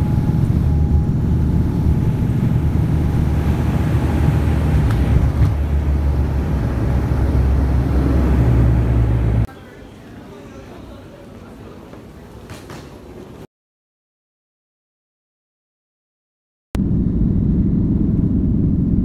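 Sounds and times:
engine and propeller drone: 0.0 - 9.5, 16.8 - 19.0
rumble of wheels: 0.0 - 9.5, 16.8 - 19.0
faint steady whine: 0.0 - 12.4.

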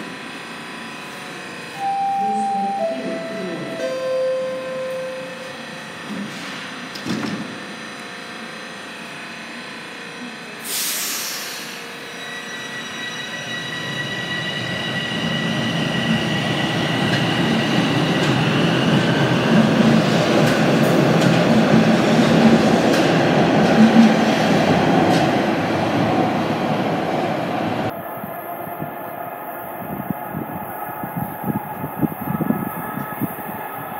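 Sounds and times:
air hiss: 10.6 - 11.8
train wheels rumbling and clattering: 14.6 - 28.0.

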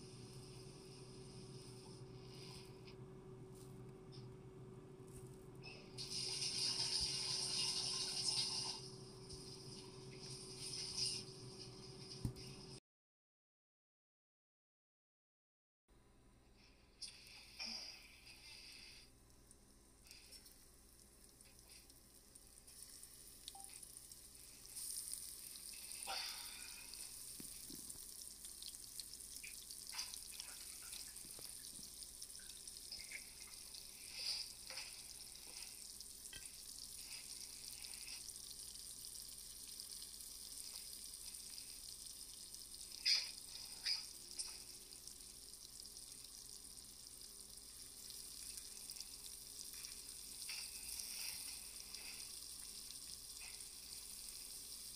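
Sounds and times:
shrimp sizzling in butter: 22.6 - 45.0.

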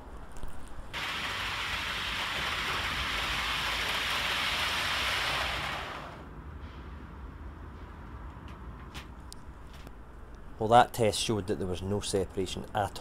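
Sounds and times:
model train wheels hissing on rails: 1.0 - 6.2.

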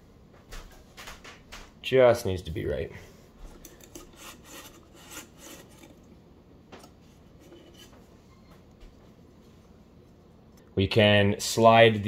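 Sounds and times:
hands scraping plastic pump: 3.6 - 6.1.

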